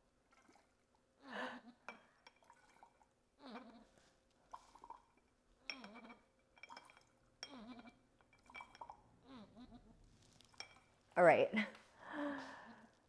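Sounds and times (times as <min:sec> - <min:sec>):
glass clinks: 0:05.6 - 0:09.0.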